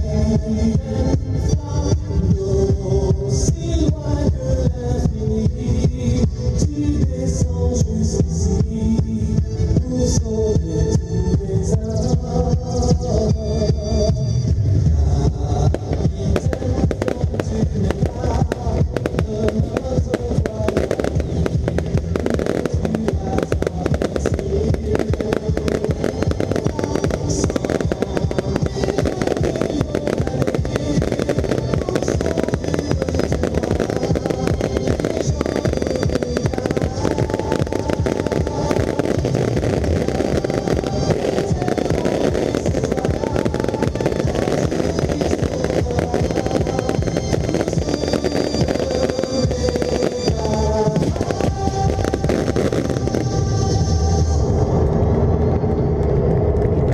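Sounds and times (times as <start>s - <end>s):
music soundtrack: 0.0s - 56.9s
fireworks bursting: 15.2s - 56.9s.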